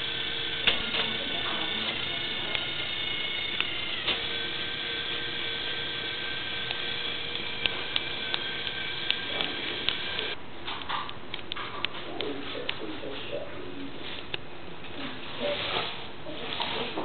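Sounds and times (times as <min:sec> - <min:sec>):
electric motor whining: 0:00.0 - 0:10.4.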